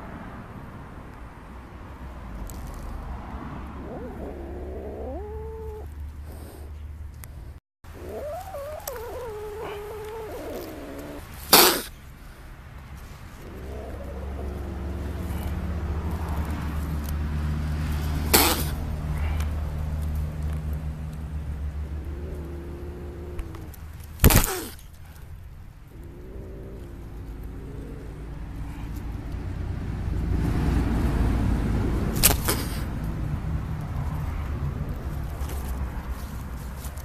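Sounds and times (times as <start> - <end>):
kitten hissing: 3.7 - 6.8, 7.9 - 12.0, 13.3 - 16.0, 18.2 - 19.4, 21.8 - 24.8, 25.9 - 29.0, 32.2 - 33.0
kitten meowing: 3.8 - 5.9, 7.9 - 11.9.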